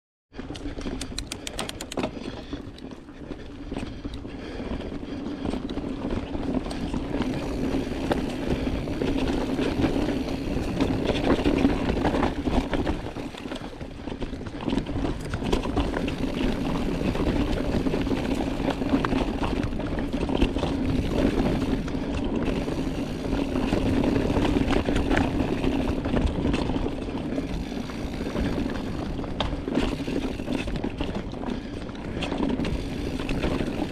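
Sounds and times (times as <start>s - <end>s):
tyres and wind rushing: 0.3s - 33.9s
bike chain and frame rattling: 0.4s - 33.9s
quick even ticks: 0.5s - 2.2s.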